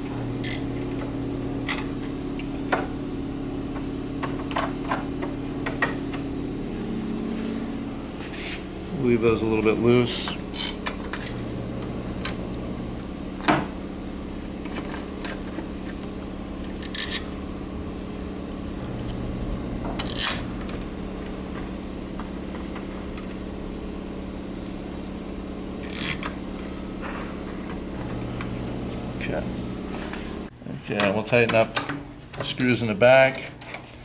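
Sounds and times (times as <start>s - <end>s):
steady low hum: 0.0s - 34.0s
screwdriver clicks and scrapes: 0.4s - 0.7s, 16.6s - 17.3s, 25.8s - 26.3s.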